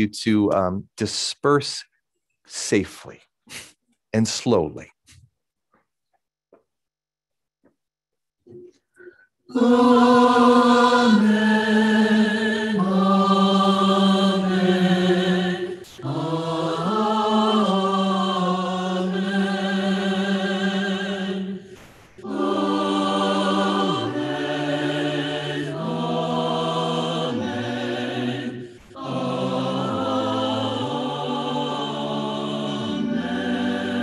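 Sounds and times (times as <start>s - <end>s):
choir singing held chords: 9.5s - 34.0s
singers breathing: 28.6s - 29.0s.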